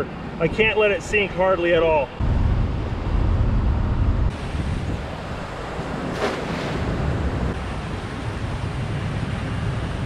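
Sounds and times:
wind buffeting microphone: 1.7s - 10.0s
net splashing into water: 6.1s - 7.0s.

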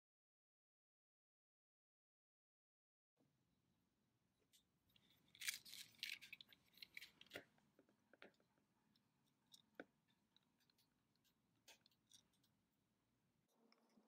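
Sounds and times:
metal blade scraping plastic: 5.0s - 7.5s.

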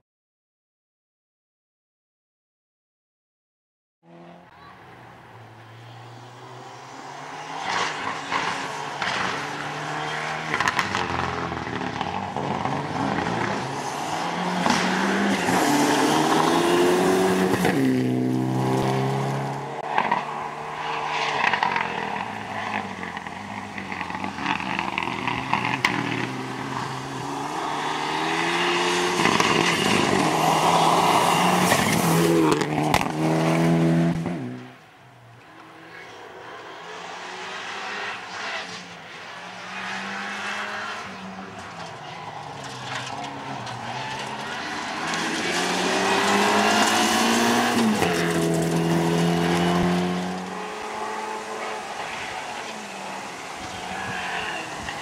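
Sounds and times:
rally car engine revving hard: 7.4s - 34.7s, 44.1s - 52.7s.

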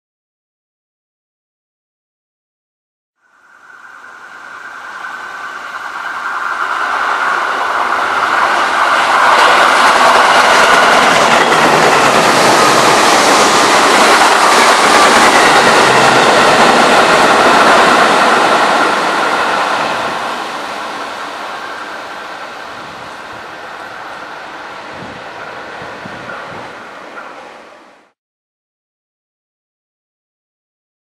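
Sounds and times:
steady high tone: 3.2s - 27.9s
train wheels on rails: 3.4s - 28.2s.

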